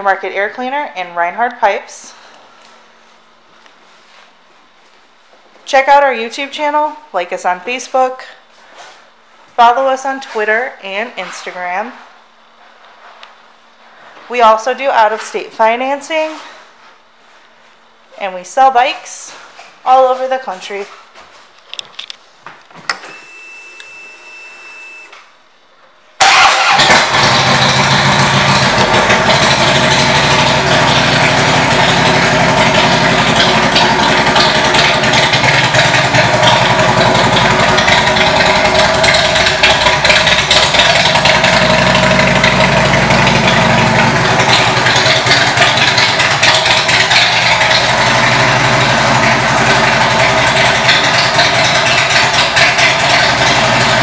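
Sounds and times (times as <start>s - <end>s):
motorcycle engine starting and idling: 26.2s - 54.0s
starter whine: 26.2s - 54.0s.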